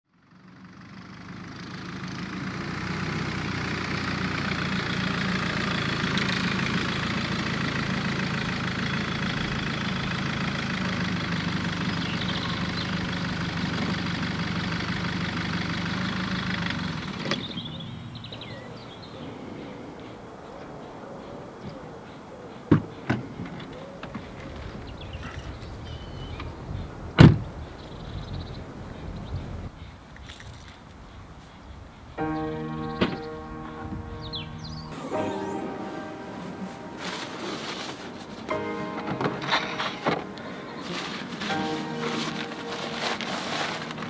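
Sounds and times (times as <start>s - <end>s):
car engine idling: 0.1s - 19.7s, 32.5s - 44.0s
songbirds chirping: 0.2s - 44.0s.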